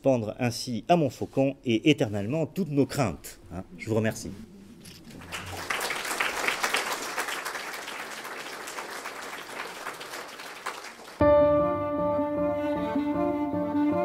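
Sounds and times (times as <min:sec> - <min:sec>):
audience applauding: 0:05.0 - 0:11.2
music with held string notes: 0:11.2 - 0:14.0.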